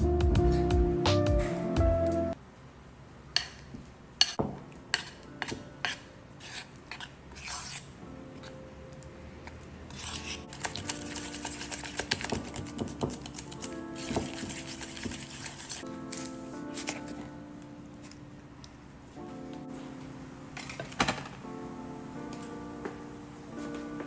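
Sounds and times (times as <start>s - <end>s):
wire whisk beating mixture: 4.2s - 7.8s, 9.9s - 17.0s
metal spoon scraping a bowl: 4.2s - 8.0s, 9.9s - 17.1s.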